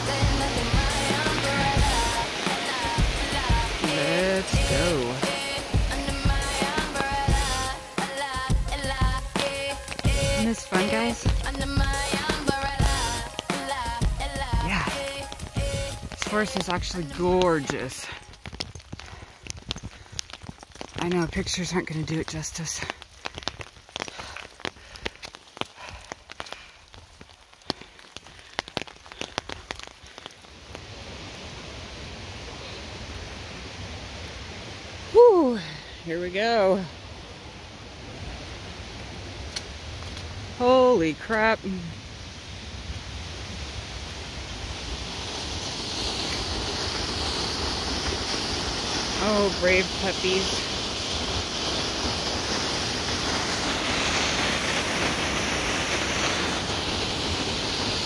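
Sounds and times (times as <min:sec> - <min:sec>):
creek and waterfall rushing: 0:00.0 - 0:18.3, 0:20.8 - 0:23.0, 0:30.6 - 0:58.0
raindrops tapping on umbrella: 0:00.0 - 0:31.1.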